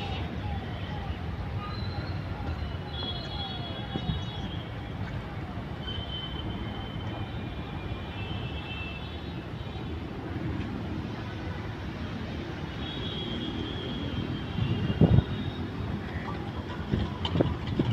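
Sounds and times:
faint high whistling tones: 1.6s - 4.6s.

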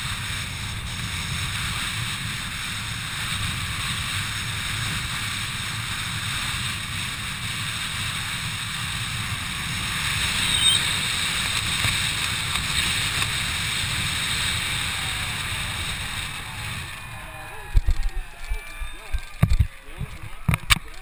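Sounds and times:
wind buffeting microphone: 0.0s - 21.0s.

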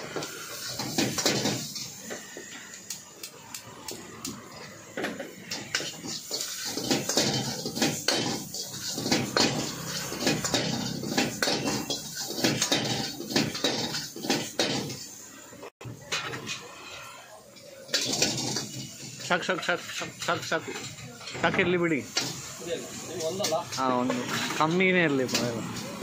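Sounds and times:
gas flame and frying hiss: 0.0s - 26.0s
metal ladle scraping a wok: 5.4s - 15.2s, 16.1s - 21.0s.

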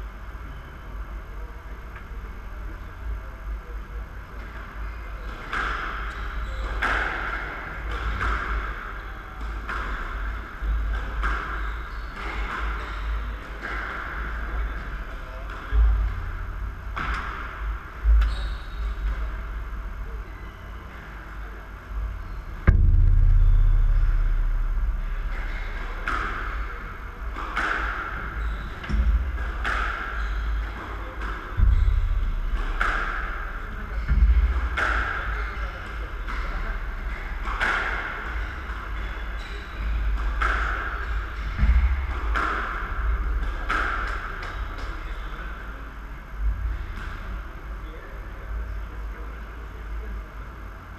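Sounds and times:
heavy low thuds: 22.0s - 27.4s, 28.2s - 29.6s, 31.5s - 37.1s.

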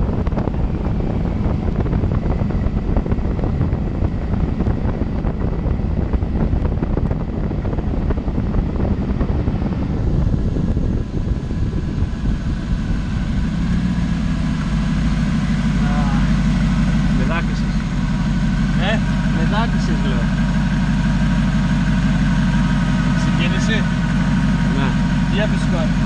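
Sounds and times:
wind on microphone: 0.0s - 18.7s
buggy engine running: 0.0s - 26.0s.

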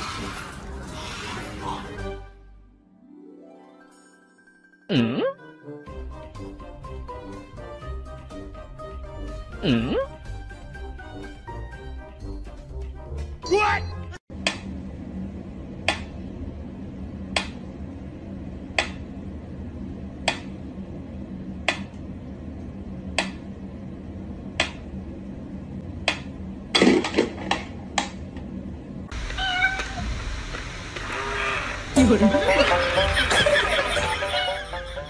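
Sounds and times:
low steady hum: 14.3s - 35.0s.

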